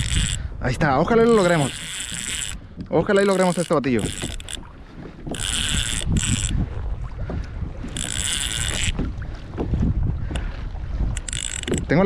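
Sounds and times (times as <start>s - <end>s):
fishing reel drag buzzing: 0.0s - 6.6s, 7.8s - 9.0s, 11.1s - 11.9s
wind rumble on microphone: 0.0s - 12.0s.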